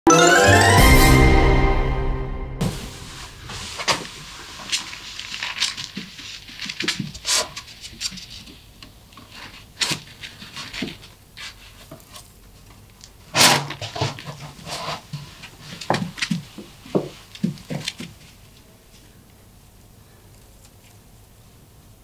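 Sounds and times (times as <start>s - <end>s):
rabbit paws on hard floor: 3.5s - 18.7s.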